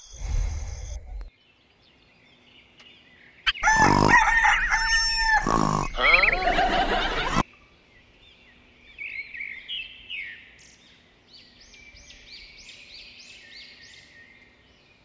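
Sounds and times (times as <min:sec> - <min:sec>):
rooster crowing: 0:03.5 - 0:07.4.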